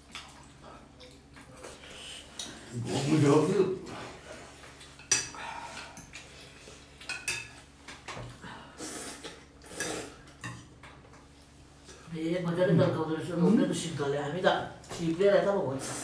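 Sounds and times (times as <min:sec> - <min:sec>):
utensils clinking on ceramic bowls: 0:07.0 - 0:07.6.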